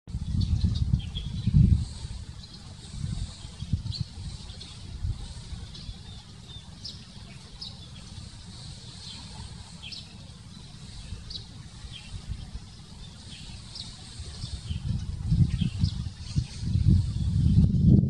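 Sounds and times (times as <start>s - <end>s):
small birds chirping: 0.1s - 17.9s
steady low rumble: 0.1s - 18.0s.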